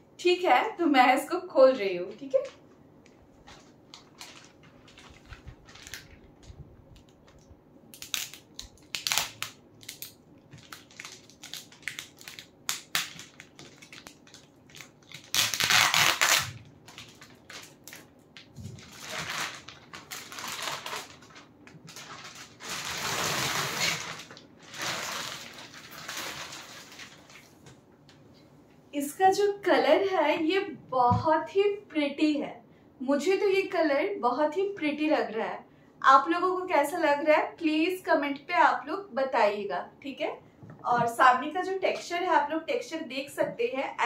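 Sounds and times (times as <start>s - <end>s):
plastic wrapping crinkling: 2.0s - 27.8s.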